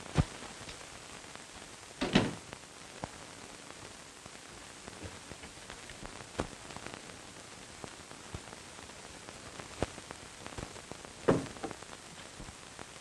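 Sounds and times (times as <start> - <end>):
crackle: 0.0 - 13.0
film soundtrack hiss: 0.0 - 13.0
knocks in closet: 2.0 - 2.4, 11.3 - 11.7.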